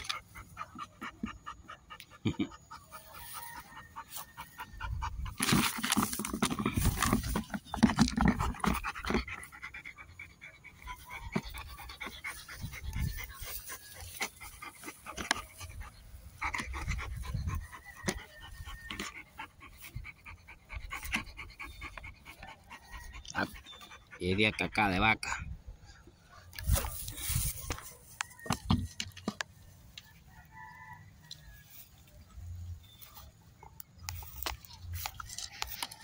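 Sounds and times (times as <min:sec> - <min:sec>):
dog panting hard: 0:00.0 - 0:25.4
scuffling and knocks: 0:05.3 - 0:09.3.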